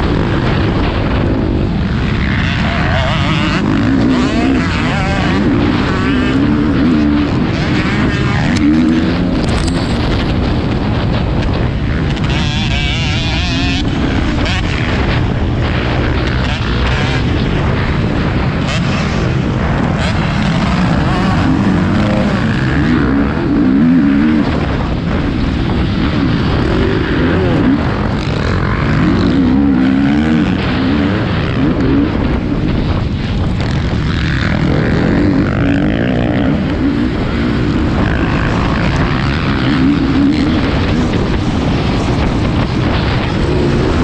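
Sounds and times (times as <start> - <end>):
motocross bike engine revving: 0.0 - 44.0.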